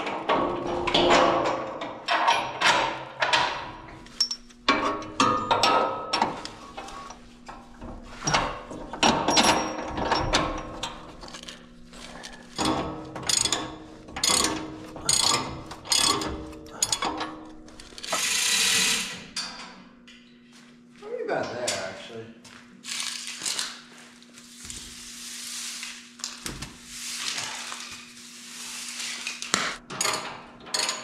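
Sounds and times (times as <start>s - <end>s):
ratchet wrench clicking: 17.8s - 19.2s.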